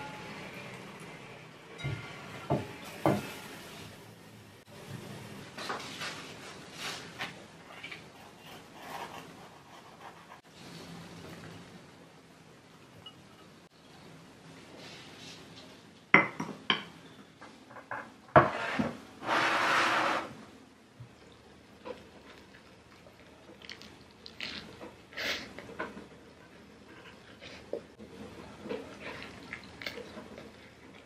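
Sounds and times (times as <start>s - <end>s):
wooden tray scraping on desk: 18.4s - 20.4s.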